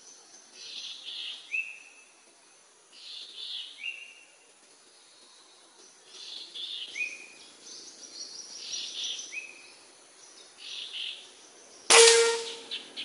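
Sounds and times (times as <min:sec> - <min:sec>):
forest birds calling: 0:00.0 - 0:13.0
air rifle shot: 0:11.9 - 0:12.7
metallic ring: 0:11.9 - 0:12.7.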